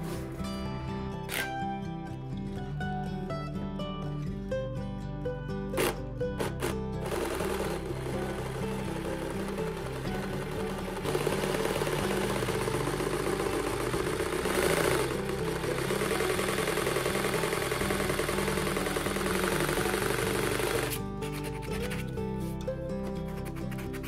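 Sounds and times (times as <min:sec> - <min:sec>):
jigsaw cutting wood: 0:05.8 - 0:22.0.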